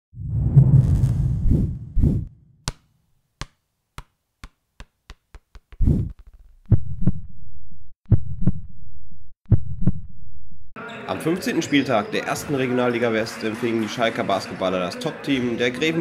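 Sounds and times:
deep bass thumps: 0:00.3 - 0:02.4.

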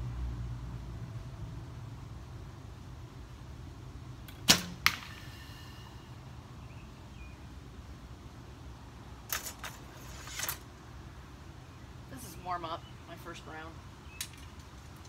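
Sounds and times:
arrow hitting foam target: 0:04.3 - 0:05.5.

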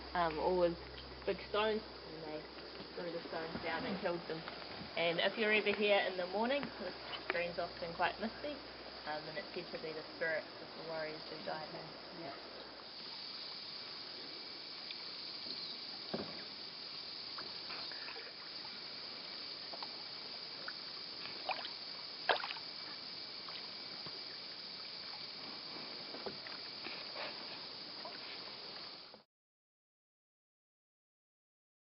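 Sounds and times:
steady soft hiss: 0:00.0 - 0:29.2
canoe paddles dipping and dripping: 0:00.2 - 0:29.2
light splashes: 0:20.6 - 0:25.4.

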